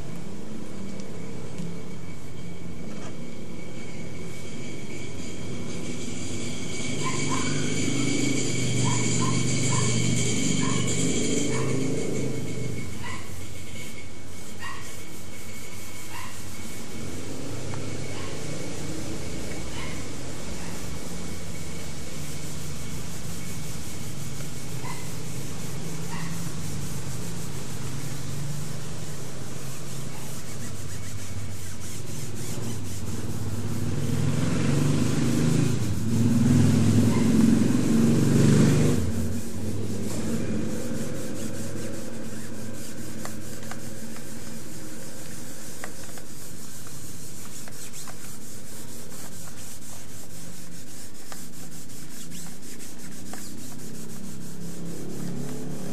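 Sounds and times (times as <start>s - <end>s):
cotton balls scrubbing paper: 20.8s - 55.9s.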